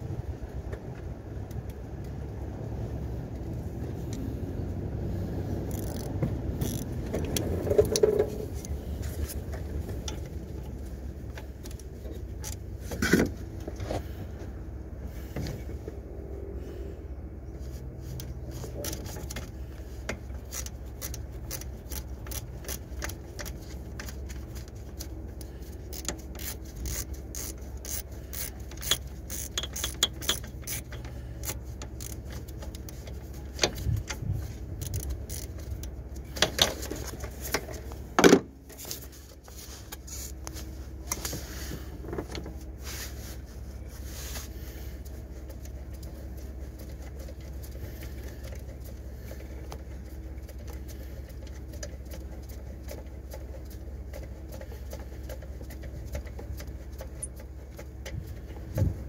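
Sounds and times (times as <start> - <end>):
steady low hum: 0.0 - 59.0
clicks and knocks in engine bay: 6.1 - 14.1, 28.6 - 39.0.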